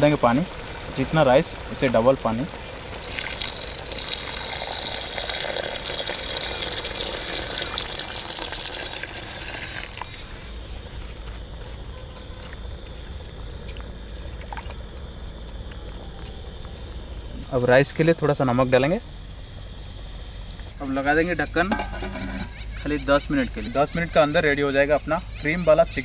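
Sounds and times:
water pouring into metal pot: 0.0s - 10.2s, 13.6s - 15.0s, 21.7s - 22.5s
high insect drone: 0.0s - 26.0s.

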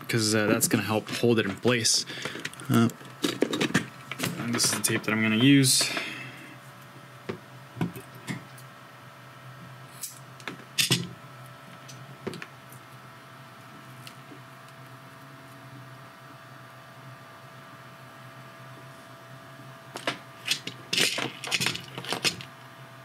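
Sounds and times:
steady low hum: 0.0s - 23.0s
clicks and rustles of handling: 0.6s - 6.1s, 20.0s - 22.6s.

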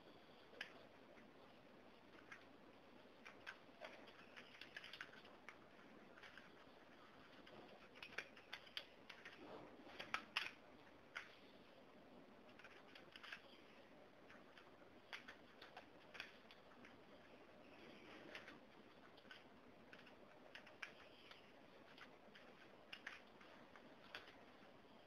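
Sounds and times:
computer keyboard typing: 3.2s - 5.6s, 12.5s - 13.5s.

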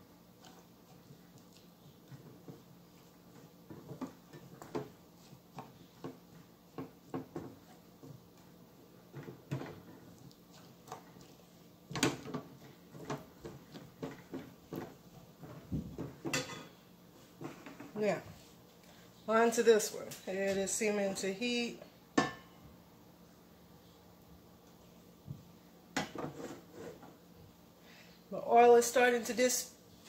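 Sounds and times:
spatula scraping a frying pan: 1.5s - 11.4s, 26.1s - 27.1s.

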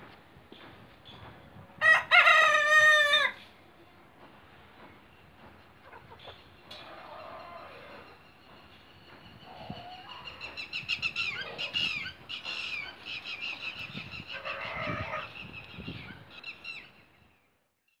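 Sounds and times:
chickens chirping: 5.4s - 17.0s
hen calling: 9.4s - 16.8s.

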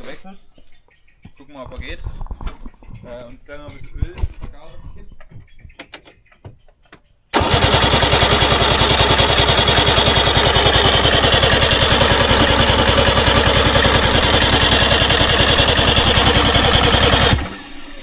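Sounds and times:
starter motor cranking engine: 7.3s - 18.0s.

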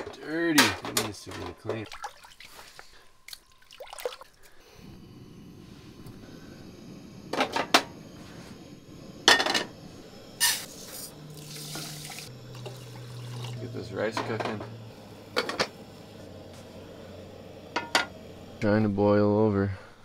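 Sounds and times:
water pouring into metal pot: 1.8s - 4.5s, 10.7s - 13.8s
camp stove burner hissing: 4.4s - 20.0s.

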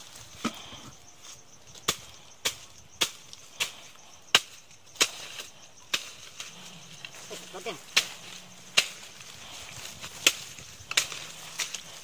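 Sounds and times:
machete chopping brush: 1.8s - 6.5s, 7.6s - 12.0s.

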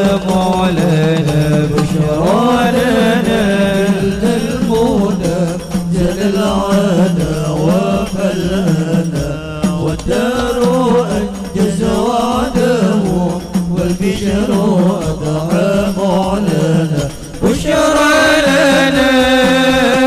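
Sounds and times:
devotional chant singing: 0.0s - 20.0s
musical accompaniment: 0.0s - 20.0s.

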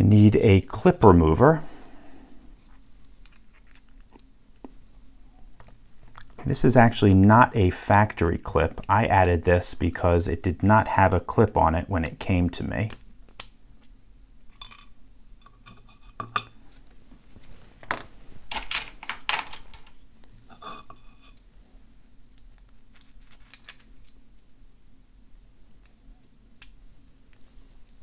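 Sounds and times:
small metal clicks and clinks: 22.3s - 24.2s.

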